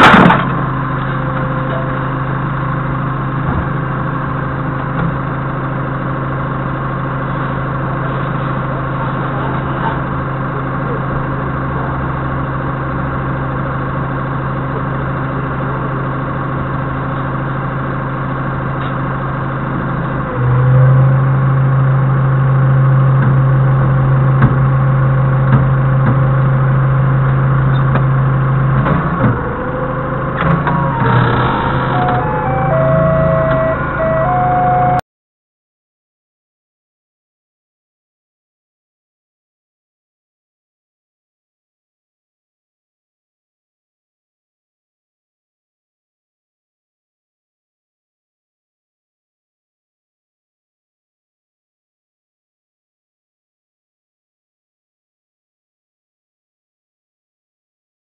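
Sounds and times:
forklift engine idling: 0.0s - 35.0s.

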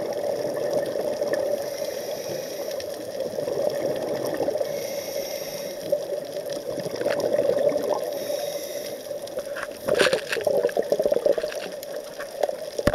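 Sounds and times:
water gurgling underwater: 0.0s - 1.6s, 3.1s - 4.7s, 6.0s - 8.1s, 9.3s - 12.9s
diver's exhaled bubbles: 6.6s - 8.1s.

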